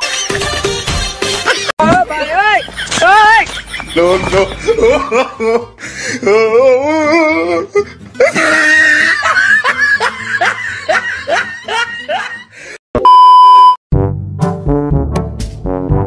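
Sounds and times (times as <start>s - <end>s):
background music: 0.0s - 2.4s, 4.0s - 12.7s, 13.9s - 16.0s
laughter sound effect: 1.4s - 1.7s, 2.5s - 5.7s, 8.2s - 12.4s
single-pitch beep: 13.0s - 13.8s.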